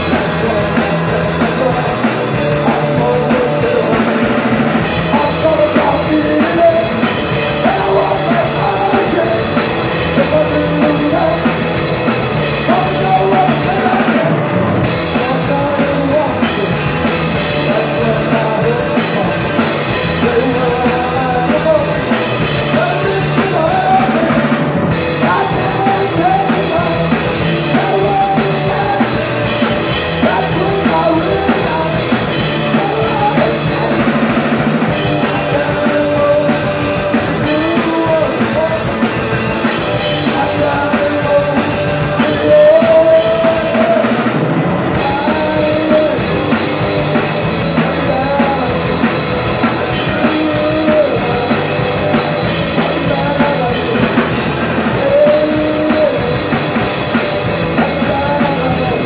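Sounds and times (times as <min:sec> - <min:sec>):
bass guitar: 0:00.0 - 0:59.0
drum kit: 0:00.0 - 0:59.0
electric guitar lead lines: 0:00.0 - 0:59.0.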